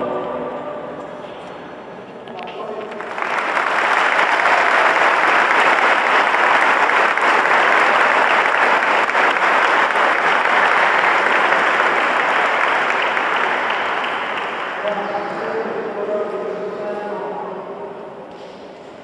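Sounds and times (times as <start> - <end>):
congregation applauding: 2.4 - 16.0.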